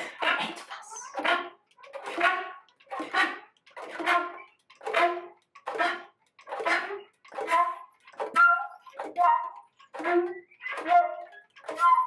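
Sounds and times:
breathy flute notes: 0:03.9 - 0:12.0.

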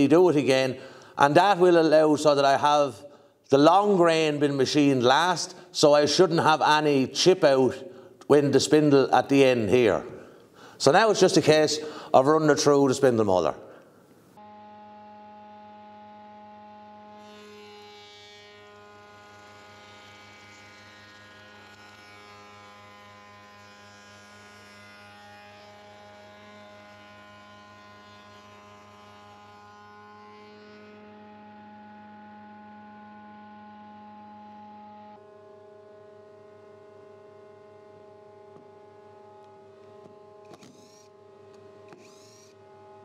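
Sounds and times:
cutter hissing on wood: 0:40.5 - 0:41.1, 0:41.9 - 0:42.6.

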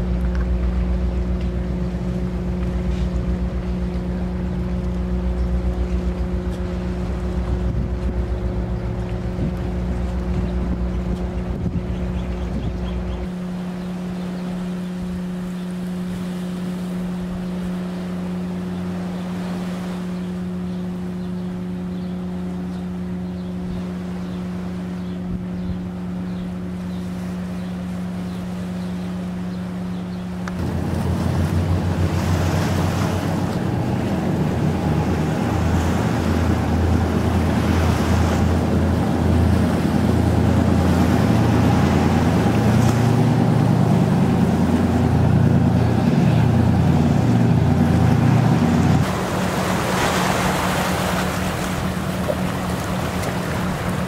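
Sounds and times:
wind rumbling on microphone: 0:00.0 - 0:16.2, 0:25.0 - 0:26.6
ship engine drone: 0:00.0 - 0:54.0
waves washing over rocks: 0:30.4 - 0:54.0.

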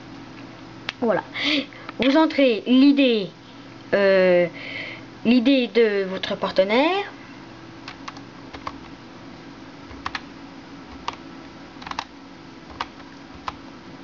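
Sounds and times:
steady low hum: 0:00.0 - 0:14.0
computer keyboard keystrokes: 0:07.8 - 0:08.9, 0:09.9 - 0:10.2, 0:10.9 - 0:11.2, 0:11.8 - 0:12.1, 0:12.7 - 0:13.6.

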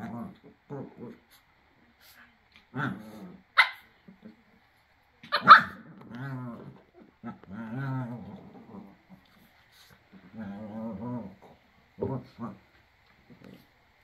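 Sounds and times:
dogs growling: 0:00.0 - 0:01.4, 0:02.0 - 0:04.6, 0:05.2 - 0:13.8
dog barking: 0:03.6 - 0:03.9, 0:05.3 - 0:05.8.

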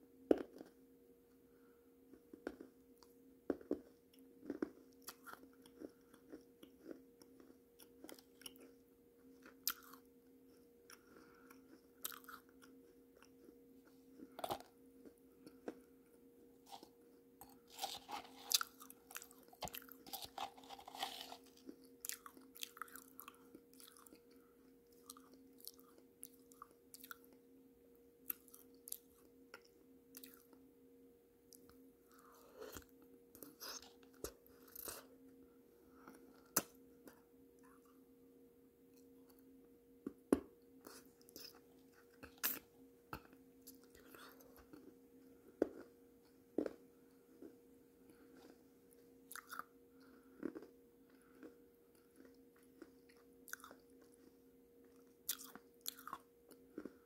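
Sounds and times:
faint electrical hum: 0:00.0 - 0:57.0
chewing and crunching clay: 0:00.3 - 0:00.8, 0:02.1 - 0:15.9, 0:16.6 - 0:27.4, 0:28.2 - 0:30.6, 0:31.5 - 0:35.1, 0:40.8 - 0:57.0.

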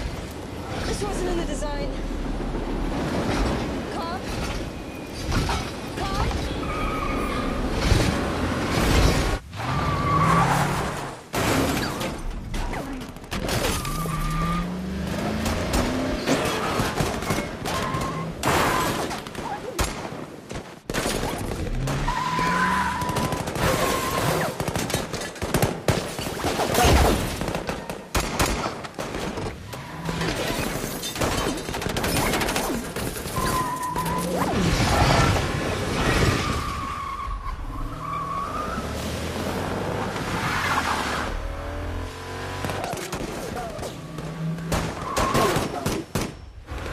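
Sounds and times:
tyres skidding: 0:00.0 - 0:19.6, 0:21.3 - 0:24.6, 0:28.8 - 0:45.8
car engines revving: 0:13.0 - 0:18.4, 0:33.1 - 0:45.4.

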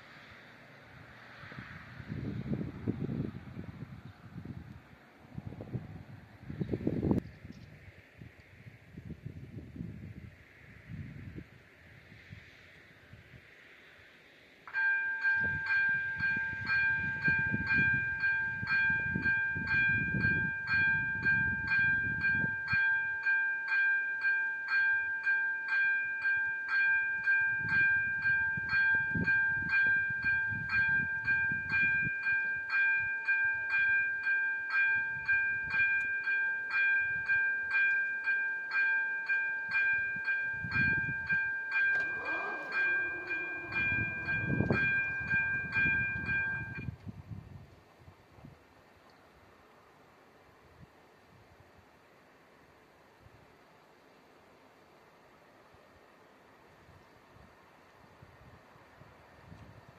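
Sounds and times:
level crossing bell ringing: 0:14.7 - 0:46.9.

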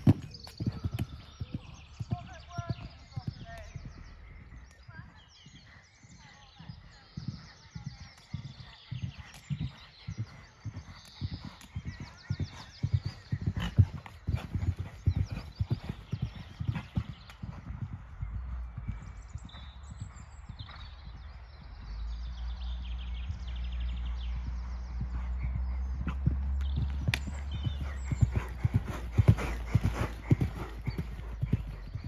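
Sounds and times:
horse hoofbeats on sand: 0:06.6 - 0:22.2, 0:23.3 - 0:32.0.

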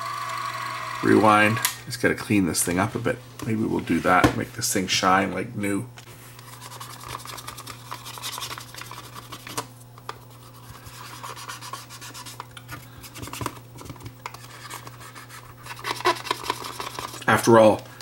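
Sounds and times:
fingers scrubbing plastic case: 0:13.1 - 0:17.2.

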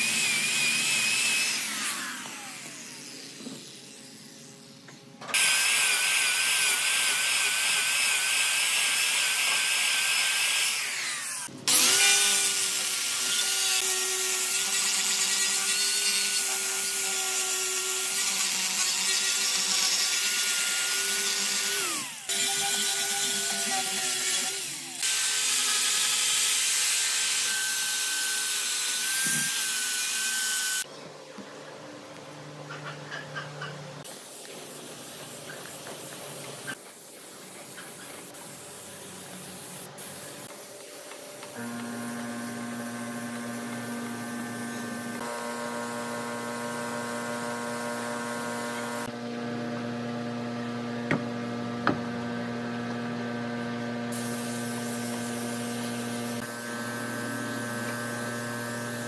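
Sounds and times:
angle grinder sanding wood: 0:00.0 - 0:04.6, 0:05.4 - 0:30.9, 0:39.8 - 0:49.8, 0:52.3 - 0:59.0.

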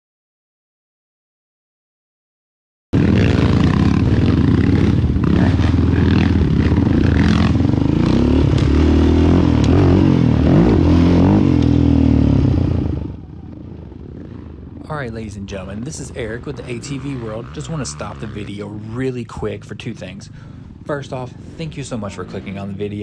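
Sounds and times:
quad engine revving: 0:03.0 - 0:13.1, 0:15.8 - 0:19.7.

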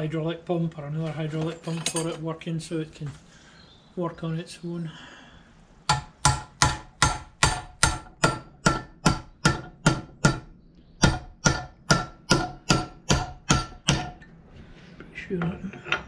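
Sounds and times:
hammer striking steel punch: 0:05.9 - 0:14.2.

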